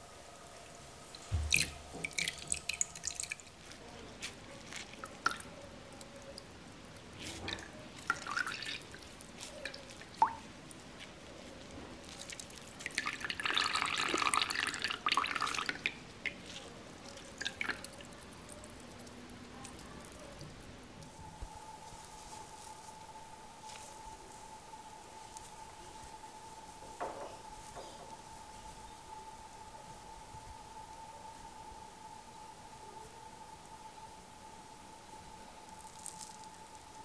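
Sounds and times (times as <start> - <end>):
liquid trickling: 1.0 - 10.9, 12.0 - 21.1
liquid dripping into metal strainer: 1.1 - 3.7, 4.7 - 10.4, 17.1 - 20.6.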